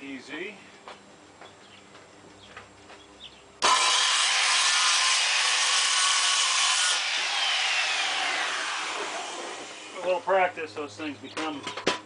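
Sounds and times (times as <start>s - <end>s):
circular saw cutting plywood: 3.6s - 10.2s.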